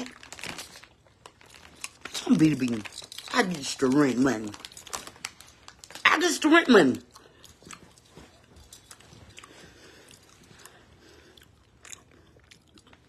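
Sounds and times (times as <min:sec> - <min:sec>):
person chewing: 0:07.0 - 0:13.0.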